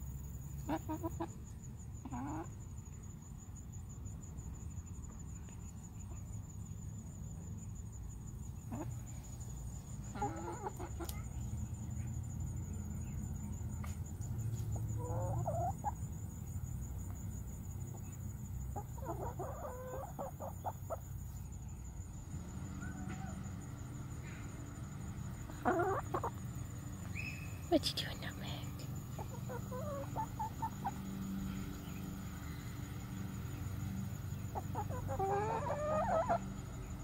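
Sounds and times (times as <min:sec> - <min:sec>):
hens clucking: 0:00.6 - 0:01.4, 0:02.0 - 0:02.6, 0:10.0 - 0:11.2, 0:14.6 - 0:16.1, 0:18.6 - 0:21.3, 0:25.2 - 0:26.8, 0:29.0 - 0:31.7, 0:33.6 - 0:36.7.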